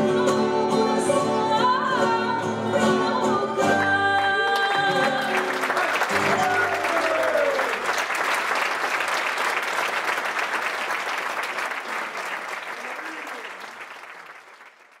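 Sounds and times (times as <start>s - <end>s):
audience applauding: 4.4s - 15.0s.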